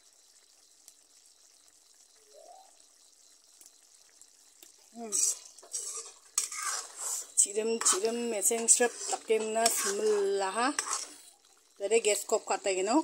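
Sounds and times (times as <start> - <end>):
metal ladle scraping a wok: 5.1 - 11.3.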